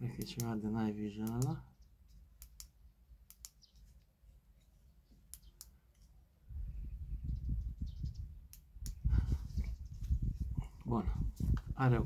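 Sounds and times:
headlamp button clicks: 2.4s - 3.6s.

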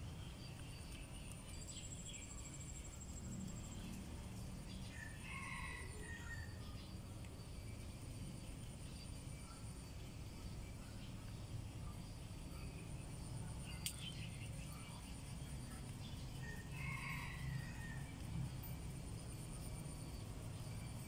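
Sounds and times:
faint high hum: 0.0s - 21.0s
sharp click: 13.8s - 14.1s.

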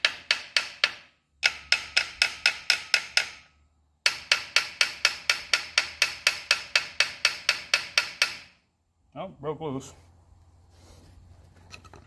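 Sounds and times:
hammer tapping on metal housing: 0.0s - 8.5s.

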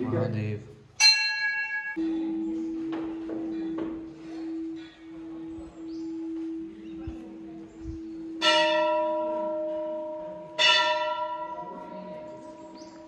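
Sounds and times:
brass bell ringing: 1.0s - 2.5s.

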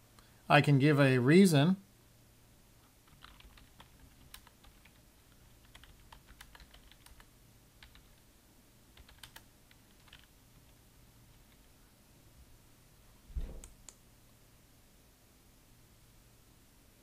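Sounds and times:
low steady hum: 0.0s - 17.0s
faint keyboard typing: 2.8s - 8.3s, 8.9s - 11.8s, 13.4s - 14.0s.

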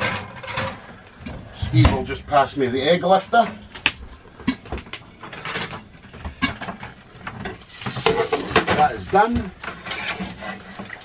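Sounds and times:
eggs sizzling: 7.0s - 11.0s
metal utensils clinking on pan: 7.4s - 8.9s.

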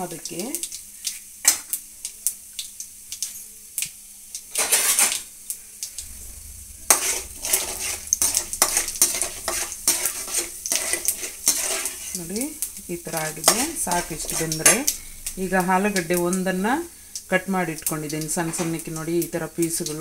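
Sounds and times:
seeds crackling and sizzling in oil: 0.0s - 20.0s
spoon scraping a pan: 4.5s - 5.2s, 6.9s - 16.1s.

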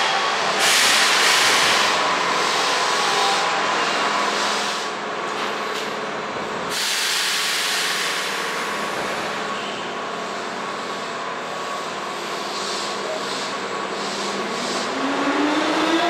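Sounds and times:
train steady hum: 0.0s - 16.0s
air brake hiss: 6.7s - 8.8s, 12.4s - 14.9s.

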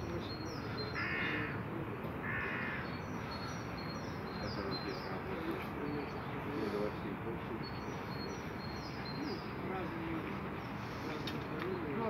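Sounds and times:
small birds chirping: 0.0s - 12.0s
crow cawing: 1.0s - 1.6s, 2.2s - 3.4s.

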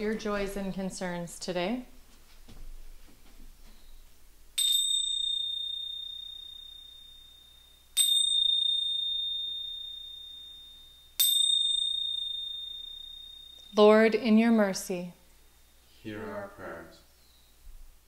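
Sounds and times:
handheld chime ringing: 4.6s - 14.5s.

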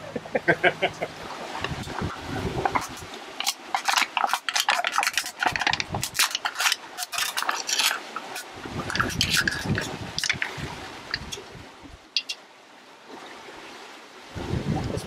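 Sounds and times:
aluminium can crinkling: 1.9s - 11.4s.

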